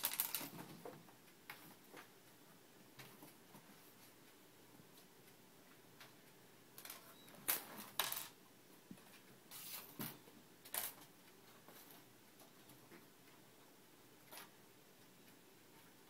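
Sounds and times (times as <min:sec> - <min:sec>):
small objects rattling in drawer: 0:00.0 - 0:00.6.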